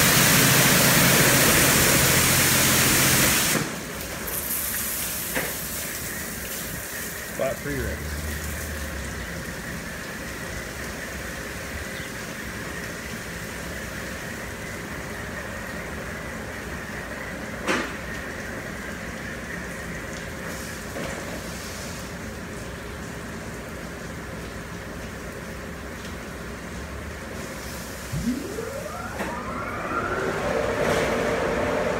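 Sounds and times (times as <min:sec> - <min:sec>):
faint high whine: 0:28.0 - 0:31.9.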